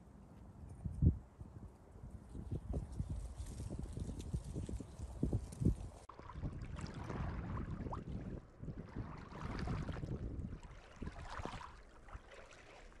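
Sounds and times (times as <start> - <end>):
wind rumble on microphone: 0.4 - 11.8
waves lapping against rocks: 6.0 - 13.0.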